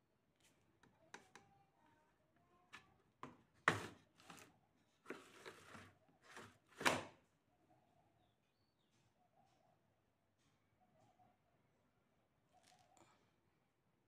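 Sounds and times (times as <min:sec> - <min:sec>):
plastic panel scraping and rattling: 0:05.1 - 0:07.1.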